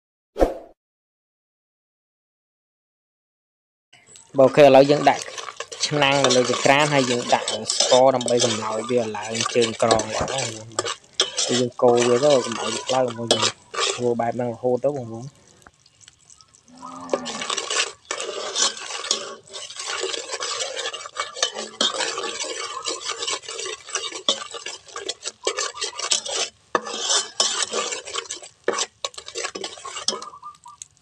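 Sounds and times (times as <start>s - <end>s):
metal ladle scraping a metal pot: 4.1s - 15.6s, 17.1s - 30.9s
ladle clinking against pot: 9.4s - 14.0s.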